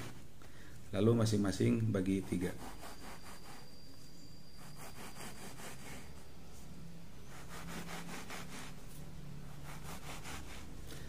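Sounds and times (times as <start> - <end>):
hacksaw rasping: 2.3 - 3.6.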